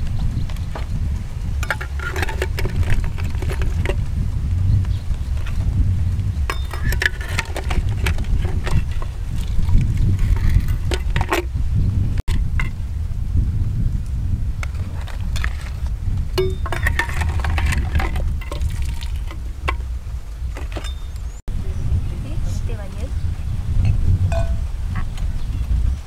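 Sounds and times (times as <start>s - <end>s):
low rumble: 0.0s - 26.0s
ladle clinking against pot: 24.3s - 24.6s.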